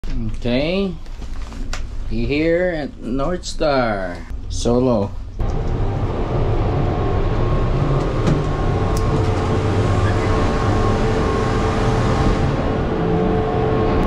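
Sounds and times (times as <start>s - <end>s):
lift machinery rumble: 1.2s - 14.0s
drive motor hum: 5.3s - 14.0s
cabins running through station: 5.4s - 14.0s.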